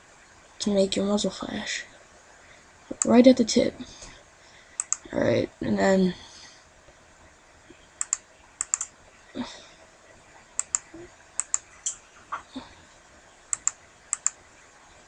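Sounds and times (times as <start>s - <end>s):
computer mouse clicks: 4.8s - 5.1s, 8.0s - 8.9s, 10.6s - 12.0s, 13.5s - 14.4s.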